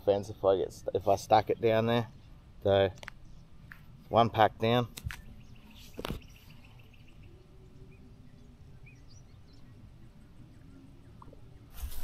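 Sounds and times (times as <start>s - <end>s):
faint bird chirps: 5.1s - 12.0s.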